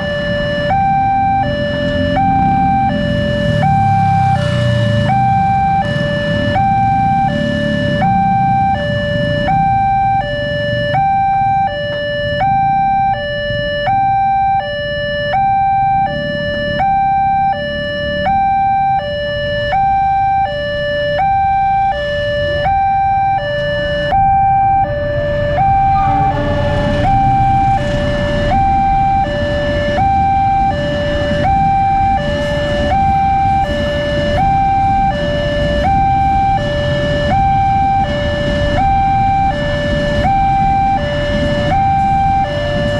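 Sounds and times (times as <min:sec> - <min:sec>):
level crossing two-tone alarm: 0:00.0 - 0:42.9
road traffic noise: 0:00.0 - 0:42.9
freight train rumble: 0:25.2 - 0:42.9.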